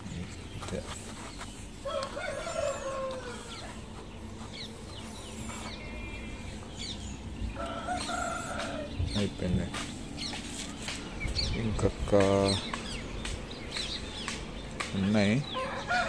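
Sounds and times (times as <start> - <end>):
small birds chirping: 0.0 - 16.0
chicken calling: 0.6 - 10.4.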